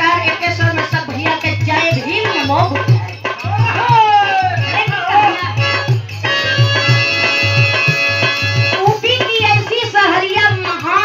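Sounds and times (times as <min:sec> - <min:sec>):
woman singing: 0:00.0 - 0:03.0, 0:08.7 - 0:11.0
hand drum beat: 0:00.0 - 0:11.0
harmonium chord: 0:04.6 - 0:10.8.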